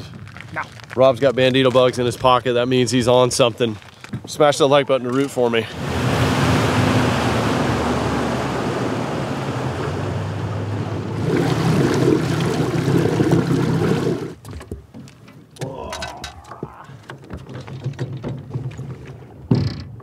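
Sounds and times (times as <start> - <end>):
wind and water rushing: 5.3 - 14.4
outboard motor running: 5.7 - 14.4
small knocks: 14.4 - 20.0.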